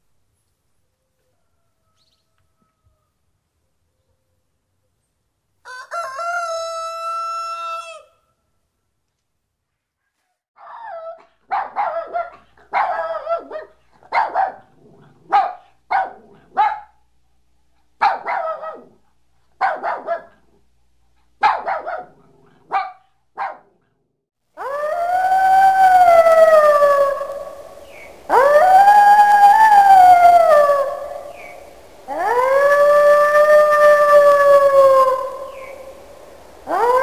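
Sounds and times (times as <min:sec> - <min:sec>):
puppy barking and yipping: 0:10.6 - 0:14.7, 0:15.3 - 0:16.9, 0:18.0 - 0:19.0, 0:19.6 - 0:20.4, 0:21.4 - 0:23.8
wolf howling: 0:24.6 - 0:36.0, 0:36.6 - 0:37.0.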